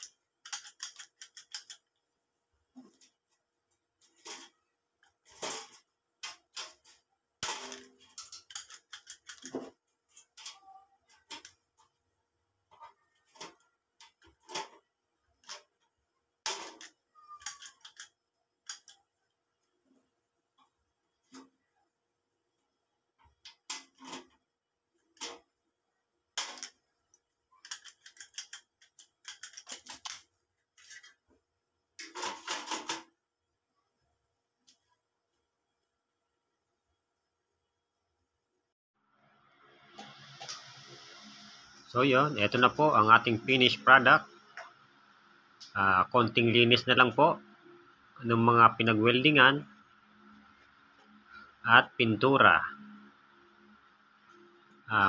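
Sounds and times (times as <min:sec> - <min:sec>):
metallic clicks of tools: 0:00.0 - 0:01.9, 0:07.7 - 0:09.6, 0:16.6 - 0:19.0, 0:26.4 - 0:30.2.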